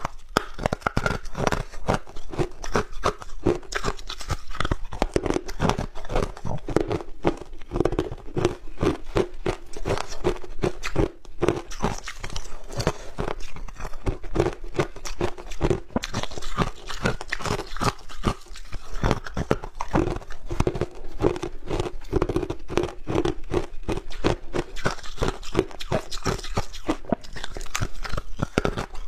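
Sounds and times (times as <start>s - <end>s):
ice being chewed: 0.0s - 29.0s.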